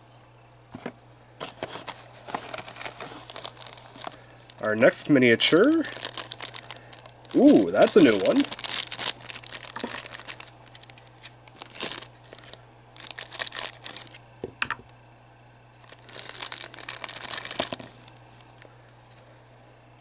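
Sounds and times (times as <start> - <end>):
plastic bag crinkling and tearing: 1.4 - 14.2, 15.7 - 18.6.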